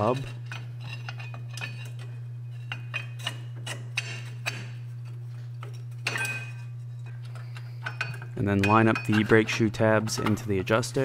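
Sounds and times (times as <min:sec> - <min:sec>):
steady low hum: 0:00.0 - 0:11.0
rattle of ringing clinks: 0:06.0 - 0:09.6.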